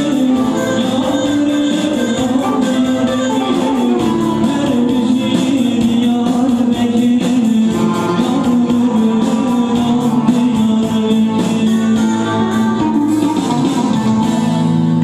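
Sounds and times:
man singing: 0.0s - 14.2s.

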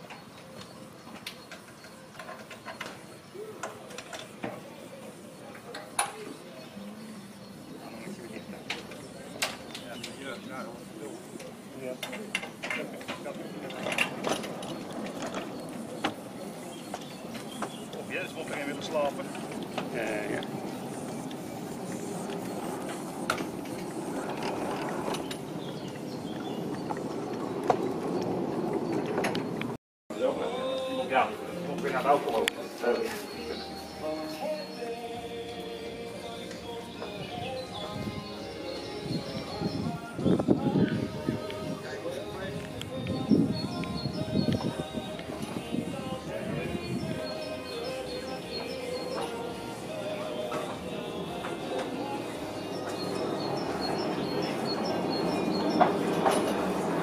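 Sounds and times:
train wheels clicking over rail joints: 11.4s - 26.0s, 52.8s - 57.0s.

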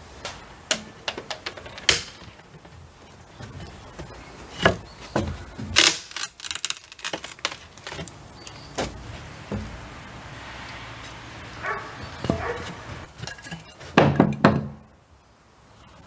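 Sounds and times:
wood cracking: 0.2s - 9.7s
hand tool prying wooden trim: 0.7s - 2.7s, 3.4s - 8.1s.

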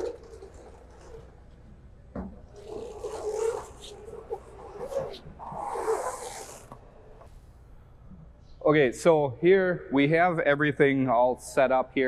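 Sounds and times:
bellows cover rustling and rubbing: 2.6s - 7.7s.

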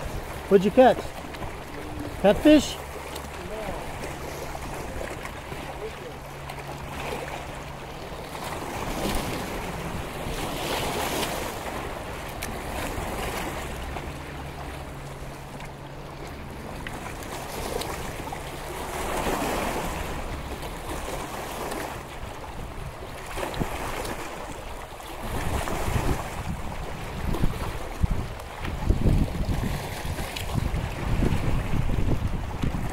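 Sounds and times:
lake waves lapping: 0.0s - 32.9s
wind gusting on microphone: 25.2s - 32.9s.

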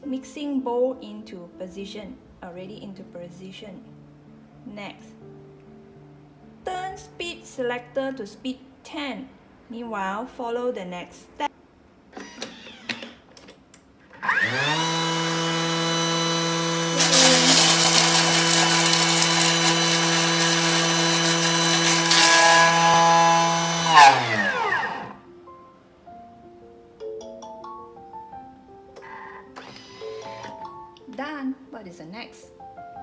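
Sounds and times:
food processor motor whining: 12.2s - 13.2s, 14.1s - 25.2s
blades chopping leaves rattle: 17.0s - 22.8s.

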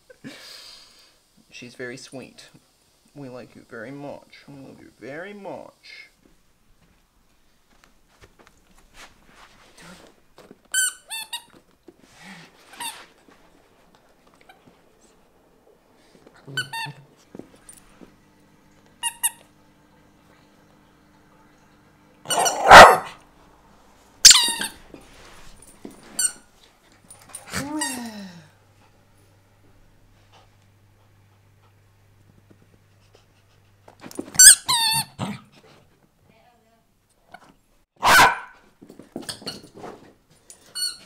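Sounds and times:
squeaky toy squeaks: 22.3s - 22.7s, 24.2s - 24.8s, 34.4s - 35.2s
small dog barking: 22.3s - 23.2s, 38.0s - 38.6s.

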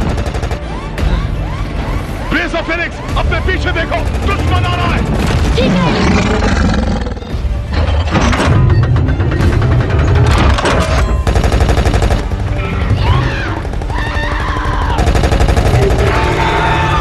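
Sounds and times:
rapid automatic cannon fire: 0.0s - 0.7s, 8.8s - 16.7s
film score: 0.0s - 17.0s.

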